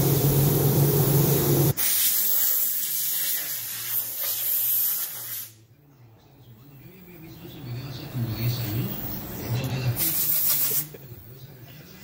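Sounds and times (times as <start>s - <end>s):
rushing air hiss: 0.0s - 5.6s.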